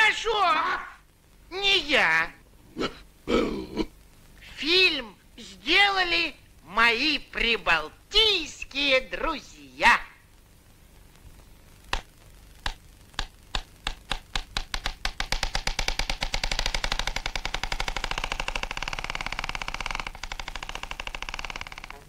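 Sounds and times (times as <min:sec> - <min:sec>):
film projector clattering: 0:14.1 - 0:22.0.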